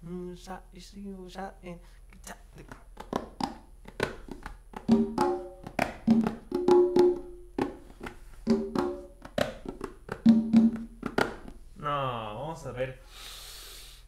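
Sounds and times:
hand drums slaps and open tones: 2.6 - 11.6.

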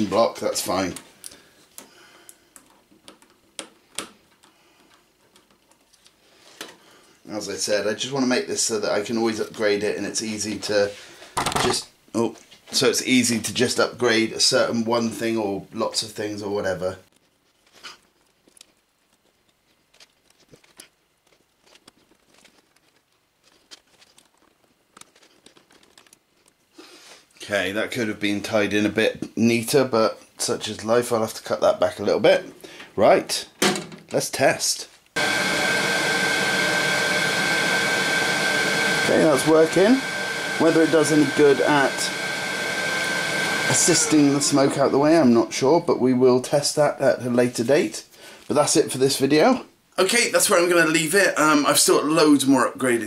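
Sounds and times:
wires and cable wrap clicking: 0.8 - 6.8, 17.1 - 27.4.

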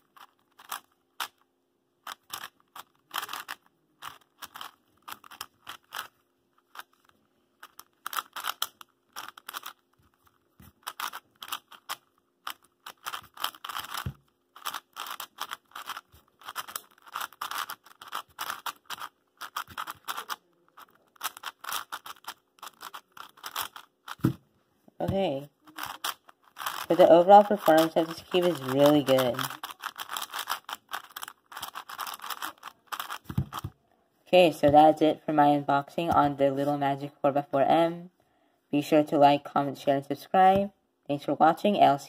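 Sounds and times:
puzzle cube turning clicks: 0.0 - 24.4, 25.6 - 33.8.

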